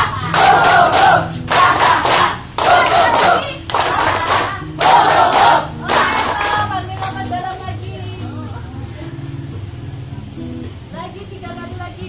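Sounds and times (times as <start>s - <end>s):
group laughing and shouting: 0.0s - 1.3s.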